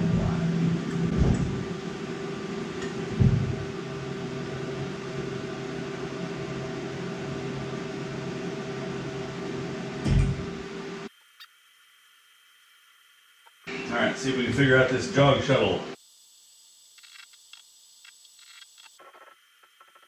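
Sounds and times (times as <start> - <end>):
milling machine humming: 0.0 - 16.0
thump: 3.2 - 3.6, 10.0 - 10.4.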